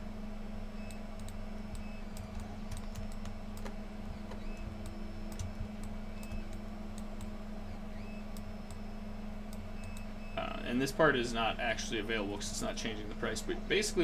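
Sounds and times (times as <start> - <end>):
low hum: 0.0 - 14.0
keyboard typing clicks: 0.8 - 7.3, 9.5 - 10.1.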